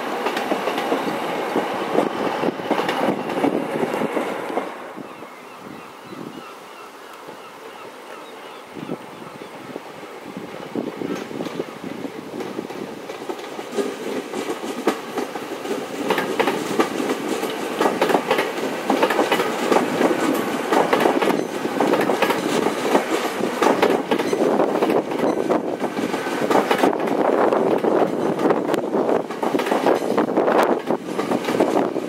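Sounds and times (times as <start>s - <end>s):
train passing close: 0.0s - 6.2s, 7.0s - 32.0s
wheels clacking over track: 12.4s - 31.9s.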